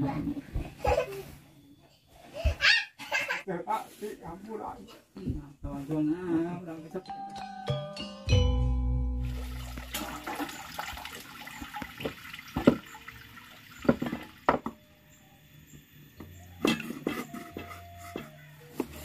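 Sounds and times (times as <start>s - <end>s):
water splashing and trickling: 9.2s - 14.6s.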